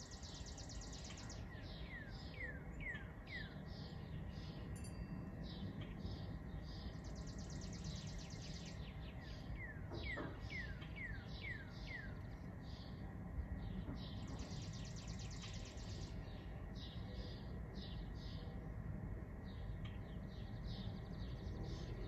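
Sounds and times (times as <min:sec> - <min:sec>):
bird trill: 0:00.0 - 0:12.9
songbirds calling: 0:00.0 - 0:22.0.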